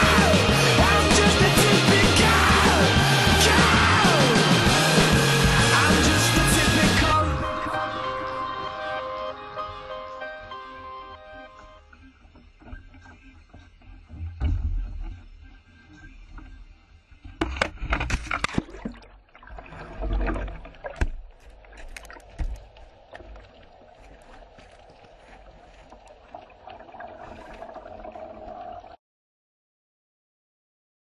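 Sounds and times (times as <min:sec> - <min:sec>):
knocks and splashes: 0:17.4 - 0:27.9
water sloshing against kayak: 0:17.6 - 0:28.8.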